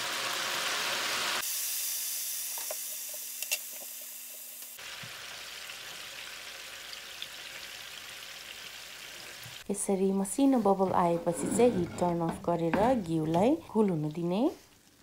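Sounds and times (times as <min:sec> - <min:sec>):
butter sizzling in a frying pan: 0:00.0 - 0:09.6.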